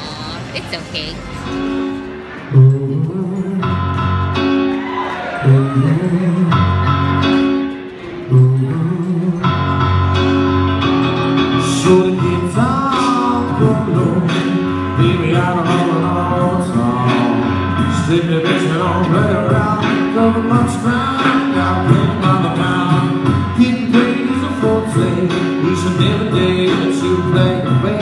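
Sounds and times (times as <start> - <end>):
piano playing: 0.0 - 28.0
man singing into a microphone: 2.5 - 4.3, 5.3 - 7.1, 8.1 - 10.2, 11.6 - 28.0.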